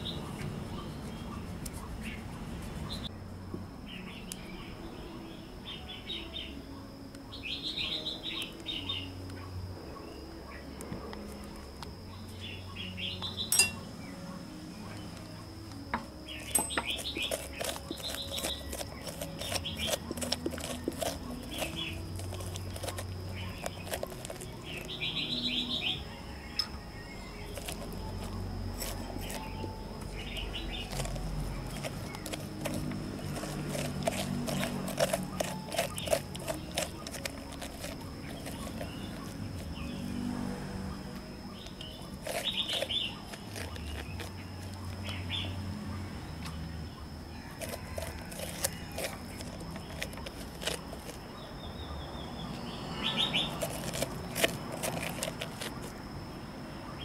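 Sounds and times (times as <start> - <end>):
birds chirping: 0.0 - 3.2, 3.8 - 57.0
spoon scraping inside pumpkin: 13.4 - 13.9, 15.2 - 40.1, 41.6 - 45.4, 47.4 - 51.4, 53.1 - 56.0.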